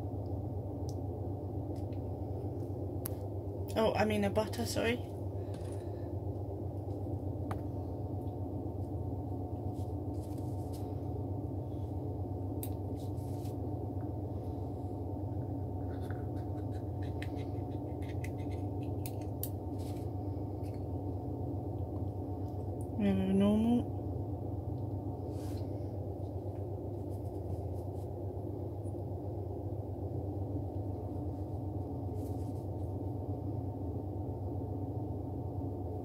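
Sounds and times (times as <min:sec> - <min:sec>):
steady low hum: 0:00.0 - 0:36.0
scissors snipping eggshell: 0:16.6 - 0:19.6.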